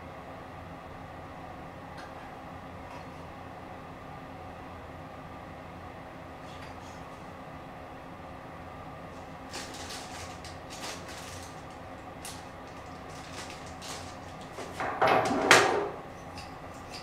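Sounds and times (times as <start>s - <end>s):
plastic packaging crinkling: 9.5s - 14.8s.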